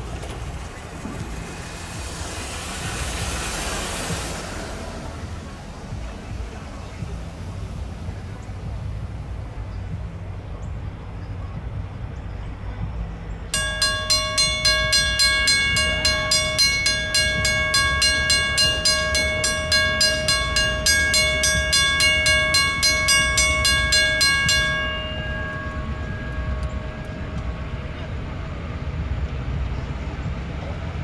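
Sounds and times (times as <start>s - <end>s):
crossing signal bell ringing: 0.0s - 5.4s, 13.6s - 29.2s
diesel locomotive rumble: 0.0s - 31.0s.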